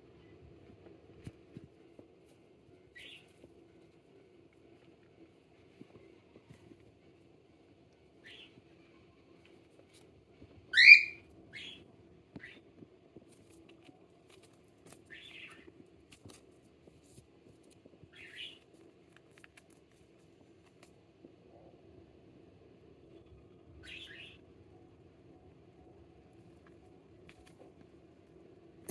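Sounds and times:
cockatiel chirping: 2.9s - 3.3s, 8.2s - 8.5s, 10.7s - 11.8s, 15.1s - 15.7s, 18.1s - 18.6s, 23.8s - 24.4s.

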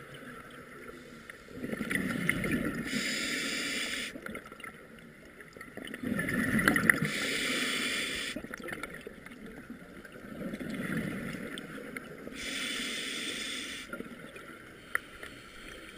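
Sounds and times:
hissing regulator inhalations: 2.9s - 4.2s, 7.1s - 8.4s, 12.4s - 14.0s.

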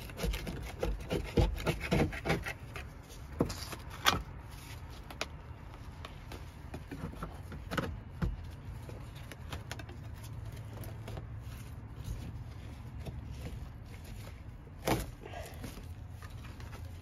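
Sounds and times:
hand scraper scraping metal: 0.0s - 2.9s.

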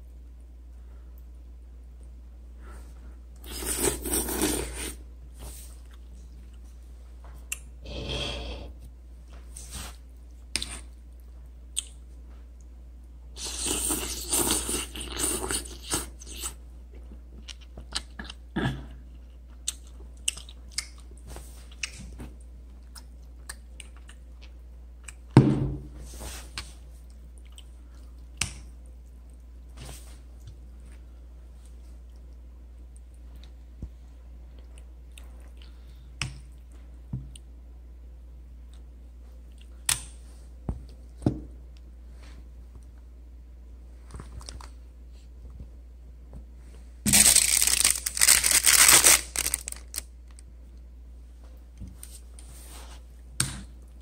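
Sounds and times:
person slurping noodles: 3.4s - 5.0s, 7.9s - 8.8s.

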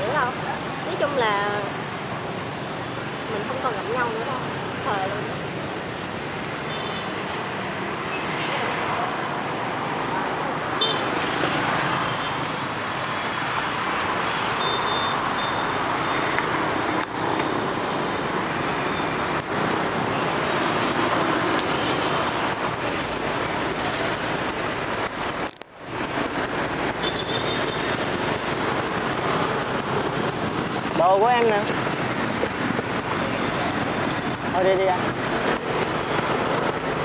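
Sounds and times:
busy street traffic with motorbikes: 0.0s - 37.0s.

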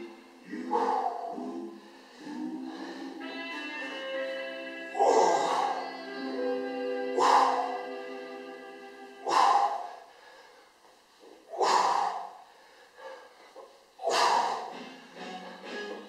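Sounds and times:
faint background music: 0.0s - 16.0s
man exhaling hard: 9.2s - 10.5s, 11.5s - 12.5s, 14.0s - 14.7s.

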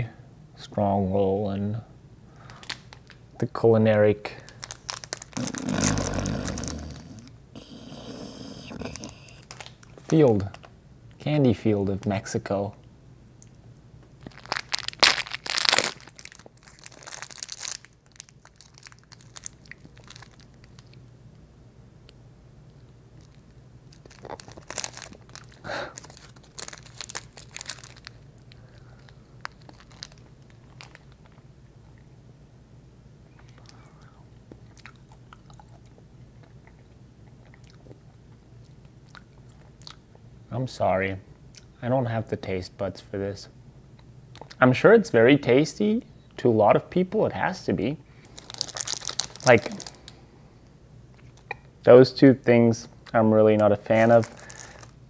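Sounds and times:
steady low hum: 0.0s - 55.0s
candy wrapper crinkling: 2.4s - 3.2s, 4.4s - 10.7s, 14.2s - 21.0s, 23.2s - 31.5s, 48.2s - 50.2s, 54.0s - 55.0s
chewing and mouth sounds: 4.7s - 10.1s, 22.7s - 32.1s, 33.3s - 40.2s.

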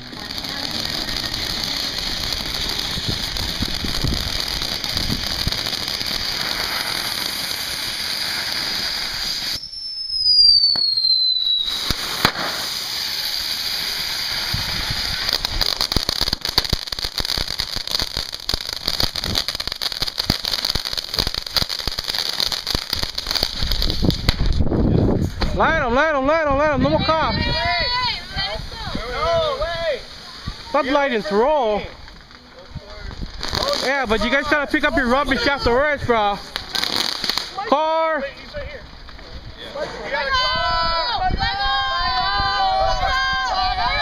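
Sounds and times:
fireworks spraying sparks hiss: 0.0s - 25.6s, 27.0s - 40.4s
dense crackling: 0.0s - 40.3s
falling whistle: 9.2s - 12.0s.

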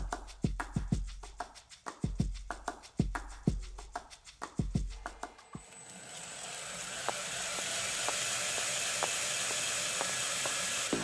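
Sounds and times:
belt grinder whirring: 5.6s - 11.0s.

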